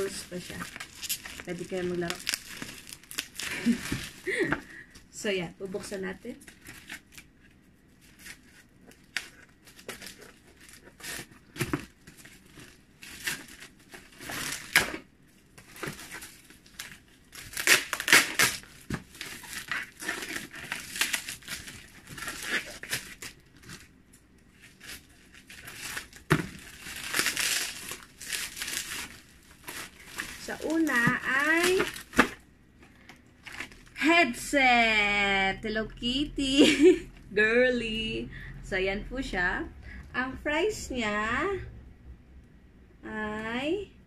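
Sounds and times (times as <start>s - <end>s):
paper tearing and crumpling: 0.0s - 4.5s, 8.0s - 23.9s, 24.5s - 32.4s
bubble wrap crinkling: 0.0s - 34.1s.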